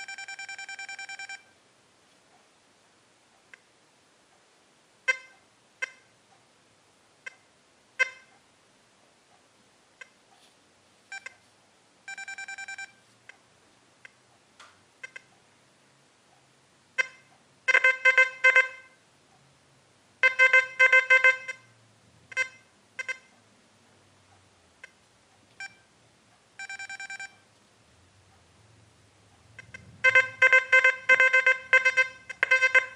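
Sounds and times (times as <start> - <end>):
metal detector beeps and tones: 0.0 - 1.5, 5.1 - 6.1, 8.0 - 8.3, 11.1 - 11.4, 12.1 - 13.0, 20.2 - 21.7, 22.3 - 23.3, 25.6 - 25.9, 26.6 - 27.5, 29.6 - 32.9.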